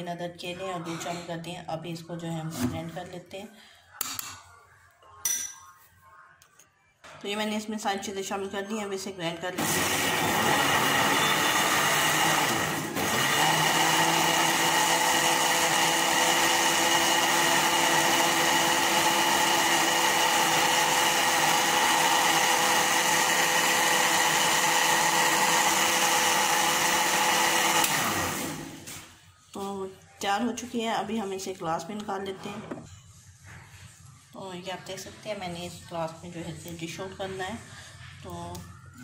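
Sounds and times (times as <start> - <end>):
blender motor running: 9.6 - 28.9.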